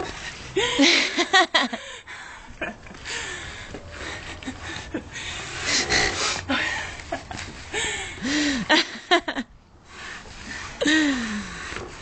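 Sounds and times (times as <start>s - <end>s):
woman laughing: 0.6s - 1.8s, 8.5s - 9.5s
heavy breathing: 1.7s - 7.0s, 7.7s - 8.7s, 9.9s - 11.9s.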